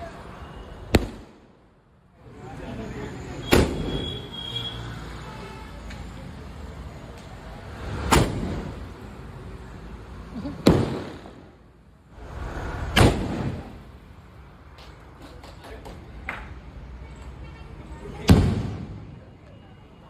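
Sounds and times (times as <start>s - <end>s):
firework bangs: 0.9s - 1.5s, 10.6s - 11.6s, 12.3s - 13.8s.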